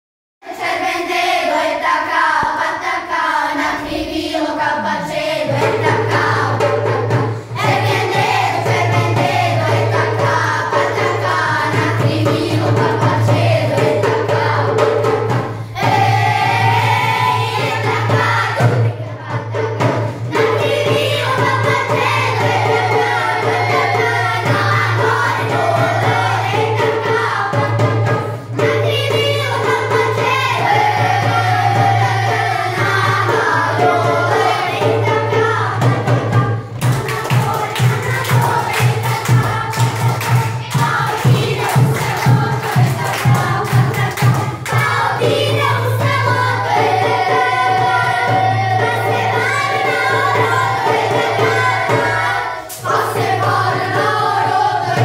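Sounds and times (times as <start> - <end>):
children's choir singing: 0.4 - 55.0.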